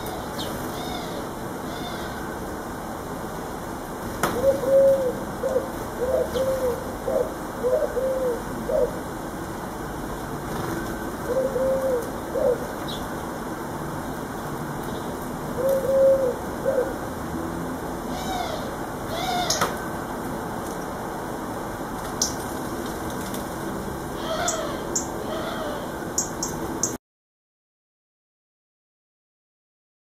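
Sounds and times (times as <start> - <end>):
pigeon cooing: 4.3 - 9.1, 11.2 - 13.0, 15.5 - 17.1, 24.2 - 26.0.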